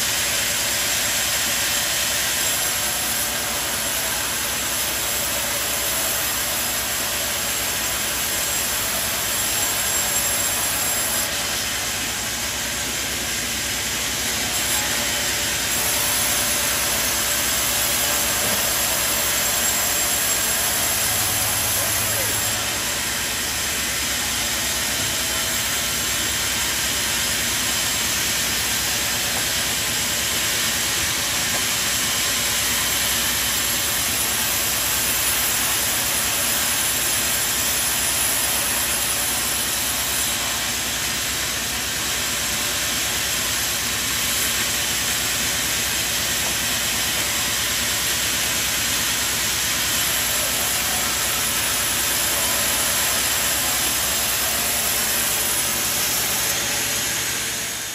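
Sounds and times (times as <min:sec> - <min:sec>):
machinery rushing noise: 0:13.8 - 0:32.5.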